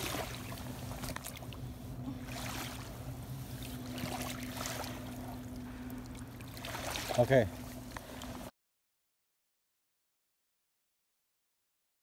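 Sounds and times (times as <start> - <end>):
shallow water lapping and sloshing: 0.0 - 8.5
small water splashes: 0.0 - 8.5
steady low hum: 0.0 - 8.5.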